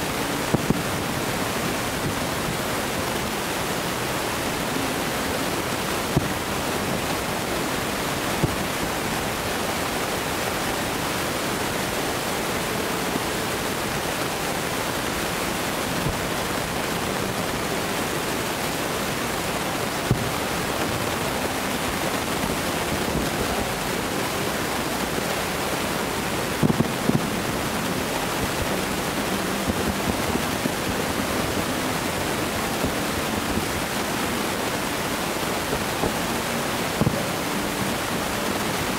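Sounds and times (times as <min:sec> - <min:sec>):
steady rushing noise: 0:00.0 - 0:38.9
distant fireworks thuds: 0:26.4 - 0:27.6.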